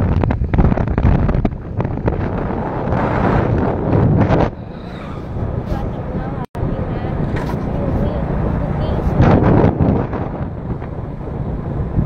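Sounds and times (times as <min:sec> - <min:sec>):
road noise: 0:00.0 - 0:12.0
wind buffeting microphone: 0:00.0 - 0:12.0.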